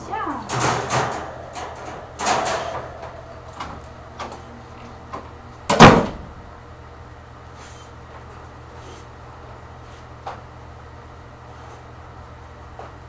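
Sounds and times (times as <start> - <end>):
loud bang: 0.5 - 6.5.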